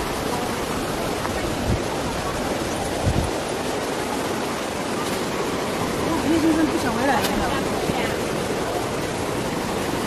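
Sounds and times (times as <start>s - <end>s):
stream rushing over rocks: 0.0s - 10.0s.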